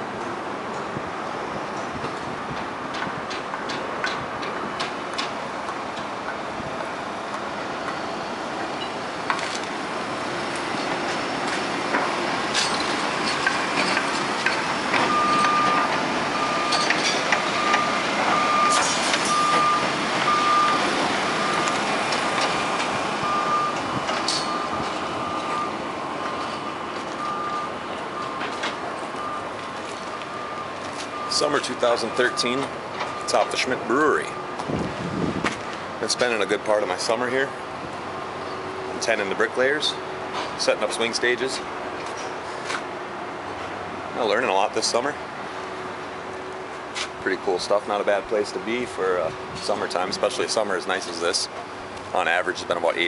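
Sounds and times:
steady outdoor rush: 0.0s - 53.0s
reversing alarm beeping: 12.6s - 34.6s.

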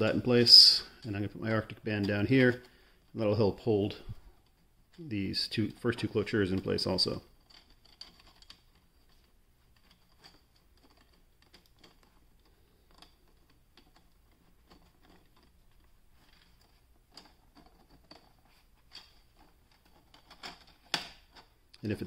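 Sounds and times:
plastic rings clicking and tapping: 5.8s - 21.9s.

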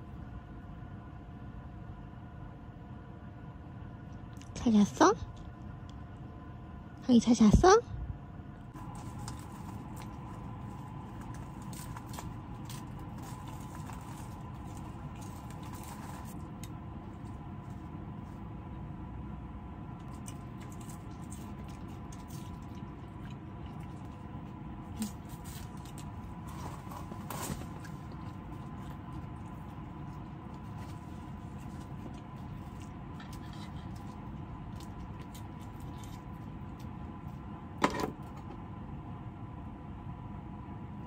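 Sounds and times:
steady background hum: 0.0s - 41.0s
dog chewing a treat: 8.8s - 18.3s, 20.1s - 37.3s.

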